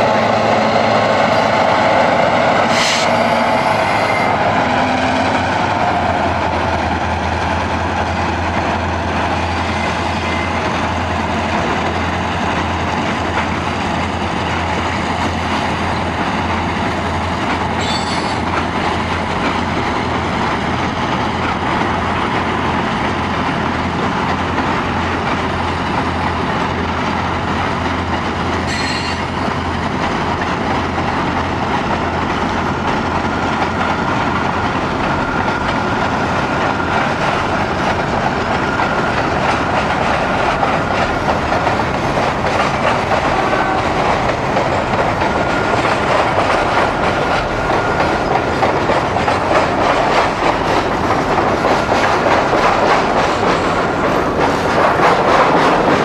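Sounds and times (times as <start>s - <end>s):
train wheels rumbling and rattling: 0.0s - 56.0s
high wheel squeal: 2.7s - 4.4s, 17.8s - 18.4s, 28.7s - 29.4s.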